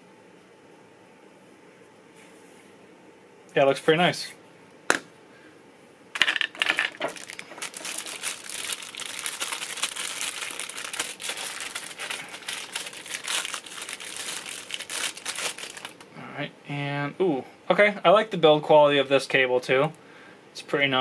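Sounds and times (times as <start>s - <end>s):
plastic bag crinkling: 6.2s - 16.1s.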